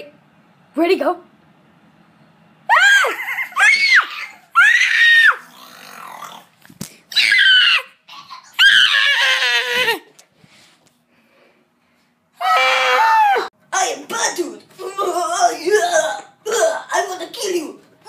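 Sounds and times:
child screaming: 2.7s - 5.5s, 7.1s - 10.1s, 12.4s - 13.5s.

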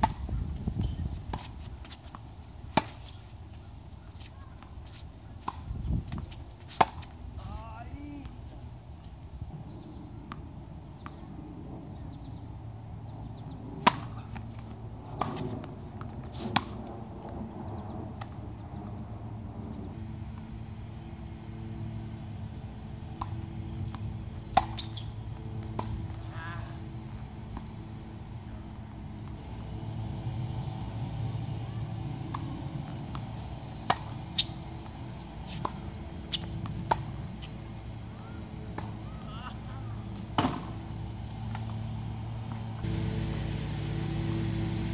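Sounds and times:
tennis ball bouncing: 0.0s - 0.3s, 1.3s - 3.2s, 4.2s - 7.1s, 13.8s - 16.8s, 23.0s - 28.0s, 32.0s - 39.5s, 40.1s - 41.8s
insects chirping: 0.0s - 44.9s
tennis racket strikes: 40.3s - 40.8s.

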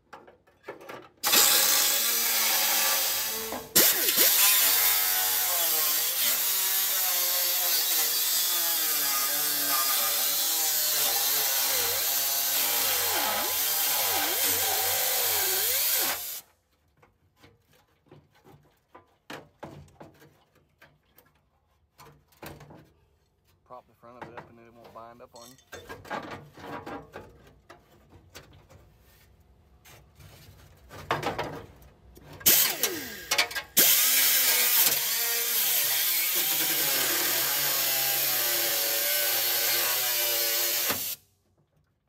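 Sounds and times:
power tool cutting metal: 1.2s - 16.4s, 32.4s - 41.2s.

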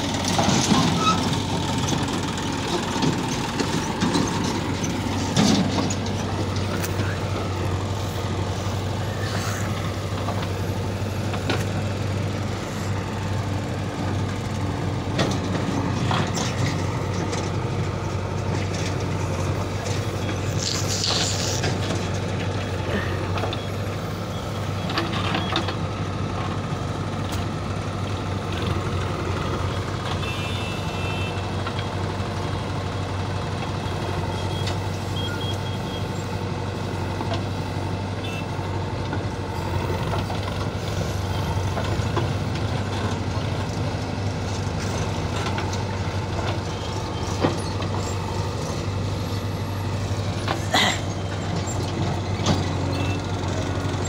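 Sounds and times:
diesel engine running: 0.0s - 54.0s
digging knocks and clanks: 0.2s - 8.6s, 9.7s - 23.7s, 44.4s - 52.9s.

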